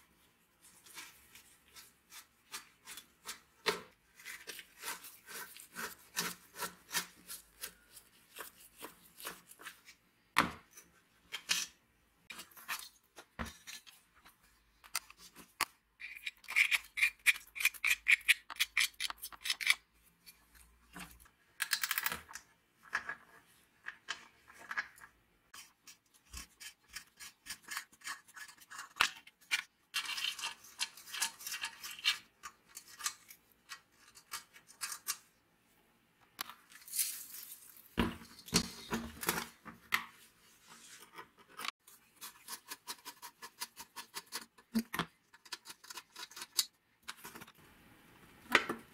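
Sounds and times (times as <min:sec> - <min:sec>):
metal parts clicking and tapping: 0:21.6 - 0:23.2.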